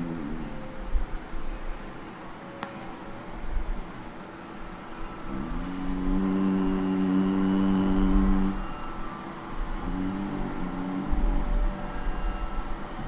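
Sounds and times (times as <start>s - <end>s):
devotional singing: 5.0s - 13.0s.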